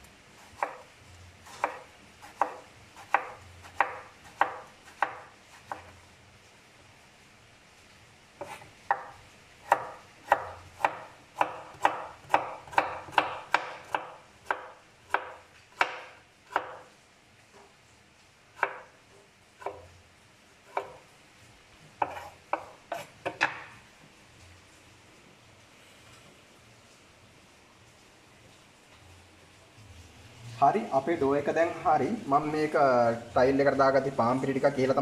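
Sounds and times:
knife striking cutting board: 22.0s - 23.7s.

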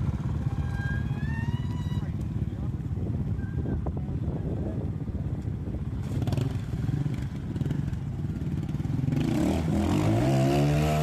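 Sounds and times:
motorbike engine revving: 5.9s - 11.0s.

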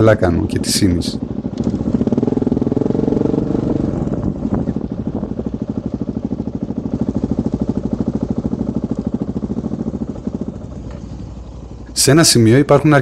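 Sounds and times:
motorcycle engine: 0.0s - 13.0s.

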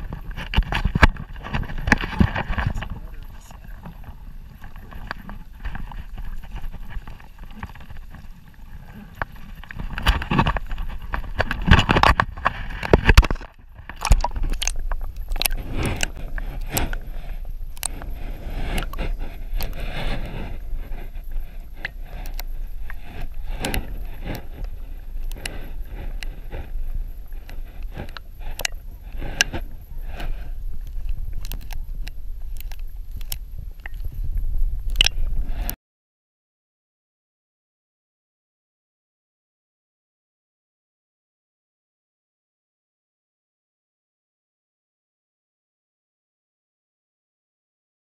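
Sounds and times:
water sloshing and splashing: 0.0s - 26.7s
wind buffeting microphone: 0.0s - 35.8s.

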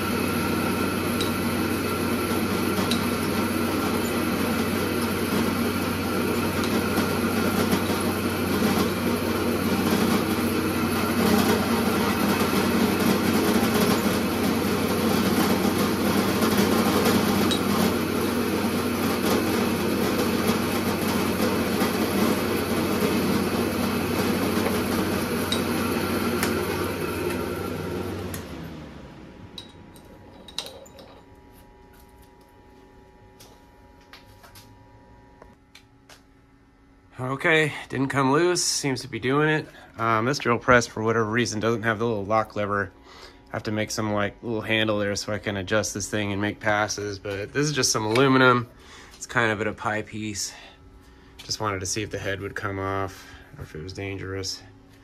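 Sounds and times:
end mill milling metal: 0.0s - 28.7s
drill press motor running: 0.0s - 34.6s.

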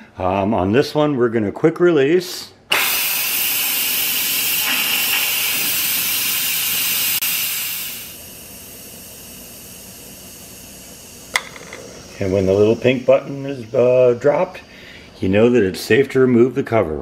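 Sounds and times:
pressure cooker steam hiss: 2.7s - 15.7s.

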